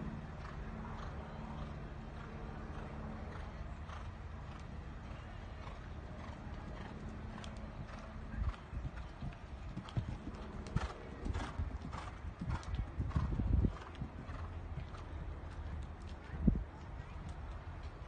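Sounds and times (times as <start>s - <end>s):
horse hoofbeats on sand: 6.2s - 18.0s.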